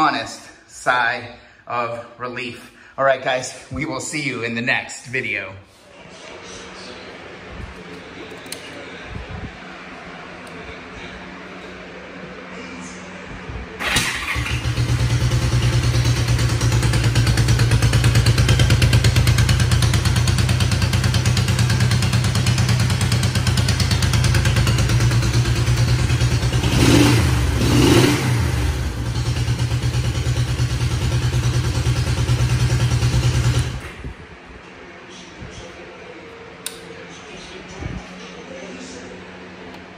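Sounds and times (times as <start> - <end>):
motorcycle engine idling: 13.8 - 33.9.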